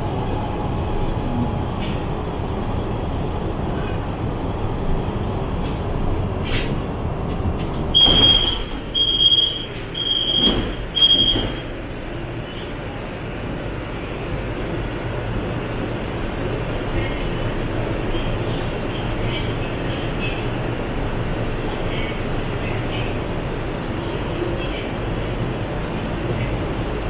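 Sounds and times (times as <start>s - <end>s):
train car rumble: 0.0s - 27.0s
train doors sliding open: 1.4s - 4.3s, 5.0s - 12.0s
high warning beeps: 8.0s - 11.7s.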